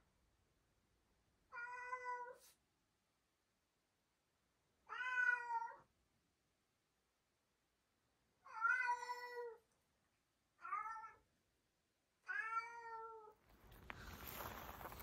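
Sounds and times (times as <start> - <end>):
cat meowing: 1.5 - 2.5, 4.9 - 5.9, 8.4 - 9.6, 10.6 - 11.3, 12.2 - 13.4
rustling hiss with crackles: 13.5 - 15.0.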